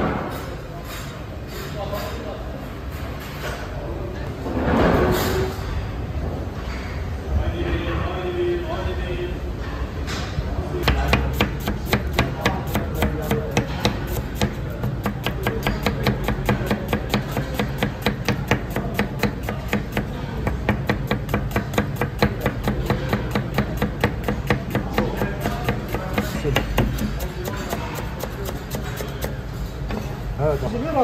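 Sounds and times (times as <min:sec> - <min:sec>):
knife chopping on cutting board: 0:10.8 - 0:30.0.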